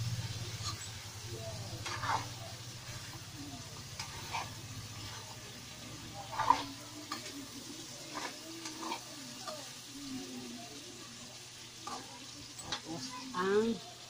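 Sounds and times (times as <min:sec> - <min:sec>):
chicken sizzling in pan: 0:00.0 - 0:14.0
metal ladle scraping wok: 0:00.4 - 0:01.1, 0:01.8 - 0:03.2, 0:03.8 - 0:07.4, 0:08.1 - 0:09.1.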